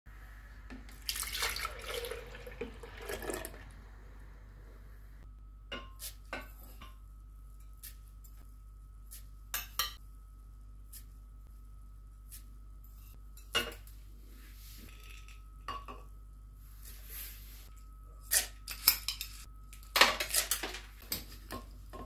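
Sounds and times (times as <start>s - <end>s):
milk pouring into a jug: 0.9s - 3.8s.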